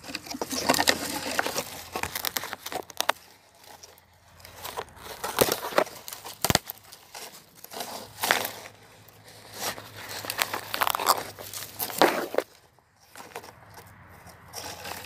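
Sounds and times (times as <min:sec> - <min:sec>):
footsteps crunching dry leaves: 0:00.0 - 0:15.0
twig snapping: 0:00.1 - 0:08.8, 0:09.6 - 0:12.6.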